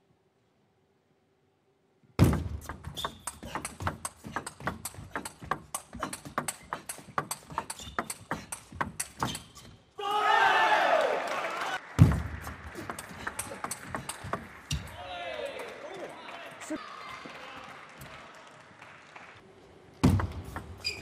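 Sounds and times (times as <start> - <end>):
shoes squeaking on floor: 2.4 - 9.9, 20.0 - 21.0
ping pong ball clicking off bats: 2.7 - 9.6, 12.1 - 14.9.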